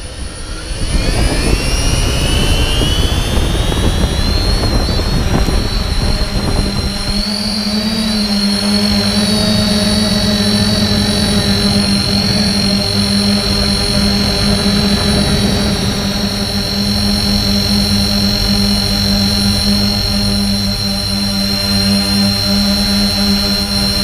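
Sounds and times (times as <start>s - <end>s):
constant rushing noise: 0.0s - 24.0s
drone motors whining: 0.0s - 24.0s.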